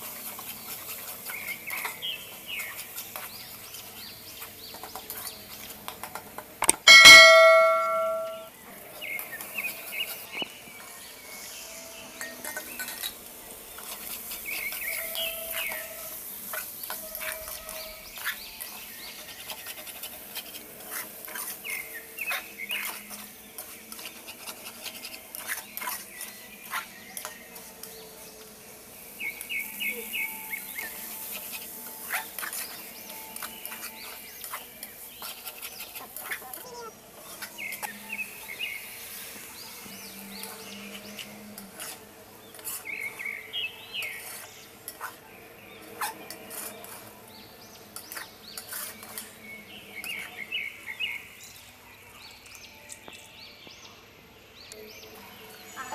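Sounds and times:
birds chirping: 0:06.9 - 0:08.5.

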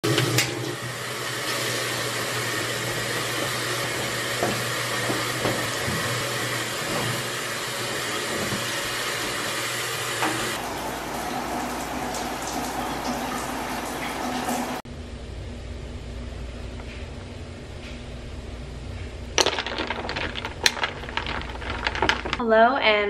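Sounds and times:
washing machine filling with water: 0:00.0 - 0:14.8
shower spray: 0:01.0 - 0:14.8.

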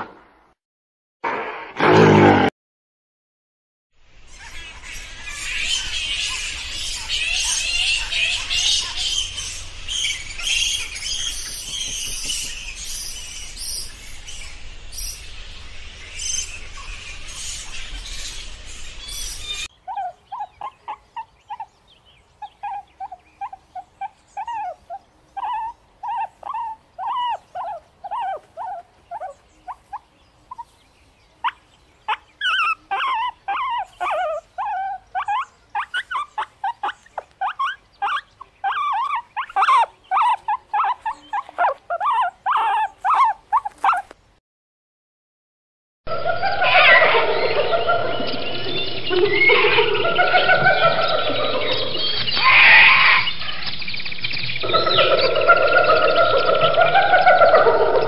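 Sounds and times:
flying foxes chattering: 0:16.4 - 0:30.8, 0:31.4 - 0:44.1
piglets squealing: 0:19.9 - 0:21.7, 0:22.4 - 0:30.6, 0:31.4 - 0:44.1, 0:52.4 - 0:53.4.

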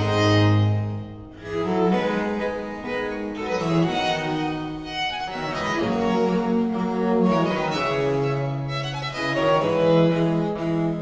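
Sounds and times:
bowed strings: 0:00.0 - 0:11.0.

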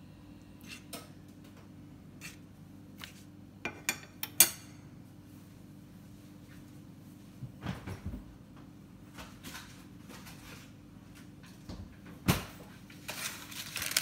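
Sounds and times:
fork scraping a frying pan: 0:00.6 - 0:00.9, 0:02.2 - 0:02.4.

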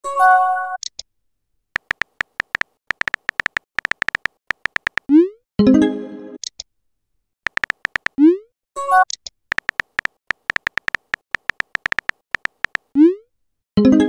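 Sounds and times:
keyboard tap clicks: 0:01.8 - 0:05.1, 0:07.5 - 0:08.2, 0:09.5 - 0:12.9.

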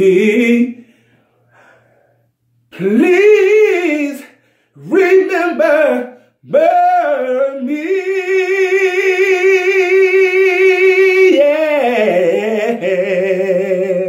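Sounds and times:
man singing unaccompanied: 0:00.0 - 0:00.9, 0:02.7 - 0:14.0.

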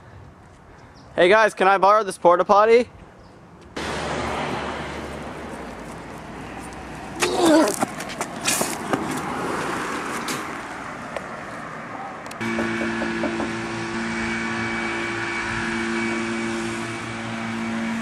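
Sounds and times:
street traffic noise: 0:00.0 - 0:18.0
steady fixed-pitch hum: 0:12.4 - 0:18.0.

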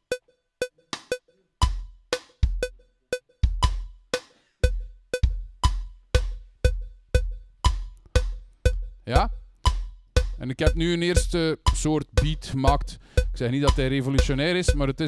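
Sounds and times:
kick drum pattern: 0:00.0 - 0:15.0
high metronome clicks: 0:04.6 - 0:15.0.

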